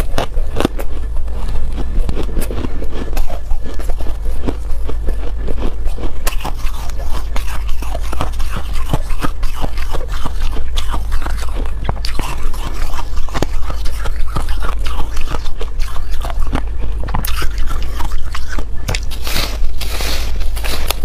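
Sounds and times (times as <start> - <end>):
ice crunching in mouth: 0.0 - 21.0
low hum: 0.0 - 21.0.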